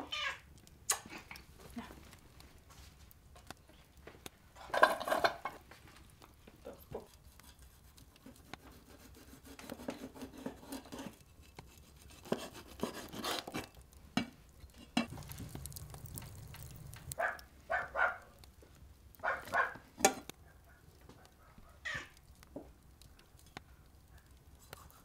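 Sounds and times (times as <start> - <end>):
cat eating from metal bowl: 14.6 - 18.1.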